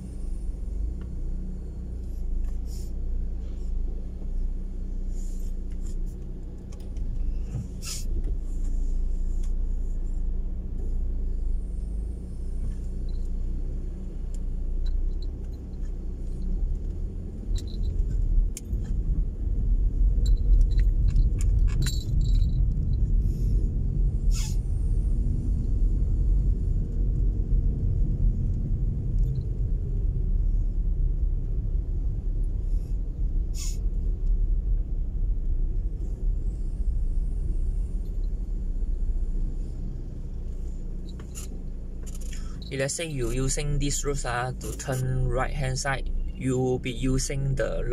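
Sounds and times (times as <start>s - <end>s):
car engine and tyres rumbling: 0.0s - 47.9s
light ticks: 5.7s - 7.6s, 14.3s - 19.0s.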